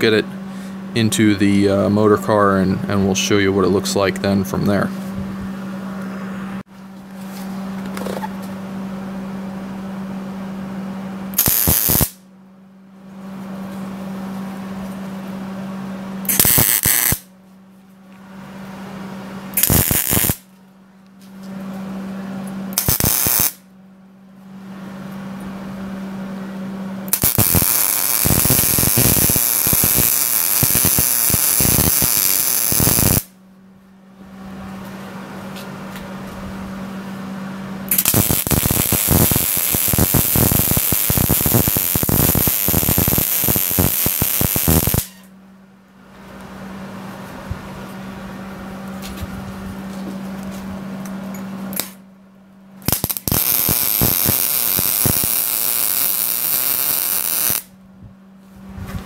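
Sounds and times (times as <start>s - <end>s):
steady low hum: 0.0s - 59.0s
arc welding crackle: 11.4s - 12.2s, 16.3s - 17.3s, 19.6s - 20.5s, 22.8s - 23.6s, 27.1s - 33.4s, 37.9s - 45.2s, 51.7s - 52.0s, 52.8s - 57.7s.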